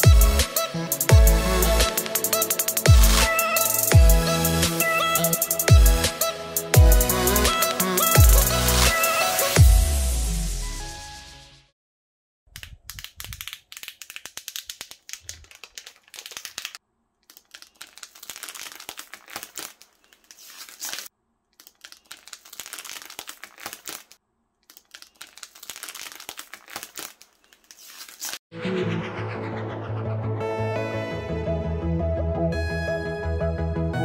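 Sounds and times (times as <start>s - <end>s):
plastic film crinkling: 12.6s - 28.4s.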